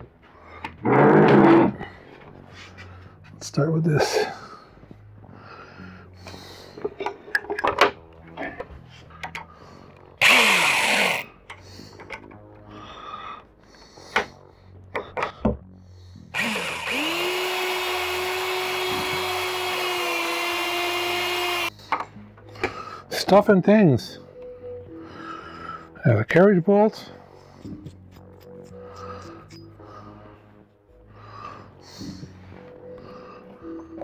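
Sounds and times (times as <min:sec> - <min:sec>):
electric drill boring into wood: 0:10.2 - 0:11.3, 0:16.3 - 0:21.7.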